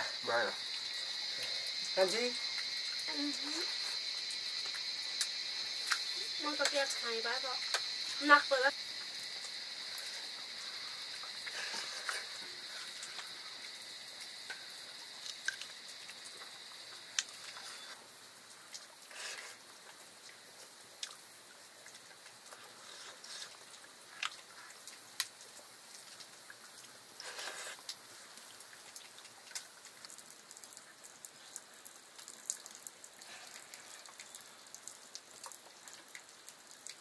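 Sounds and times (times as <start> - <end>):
high-pitched insect drone: 0.0 - 18.0
drips: 0.0 - 37.0.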